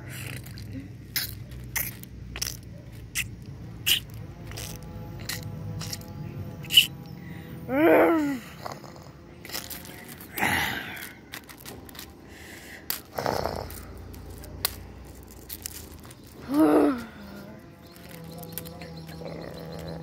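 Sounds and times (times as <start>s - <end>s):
plastic toys scraping on gravel: 0.0s - 20.0s
wavering screech: 3.8s - 7.5s.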